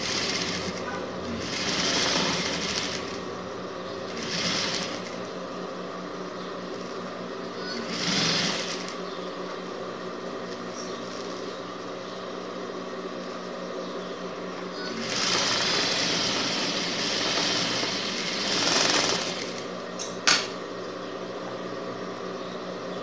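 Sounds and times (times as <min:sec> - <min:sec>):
sewing machine stitching: 0:00.0 - 0:03.2, 0:04.1 - 0:05.2, 0:07.6 - 0:09.0, 0:14.8 - 0:19.7.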